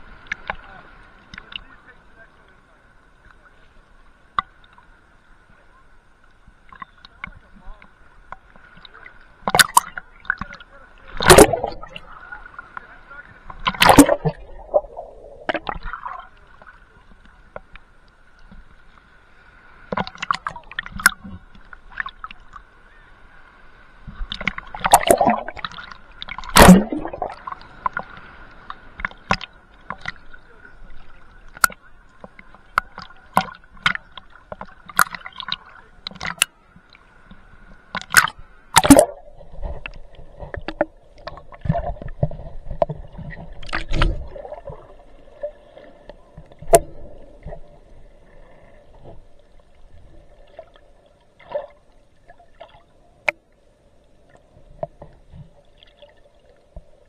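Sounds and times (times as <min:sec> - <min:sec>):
seawater sloshing and splashing: 0:08.9 - 0:16.6, 0:24.2 - 0:30.4.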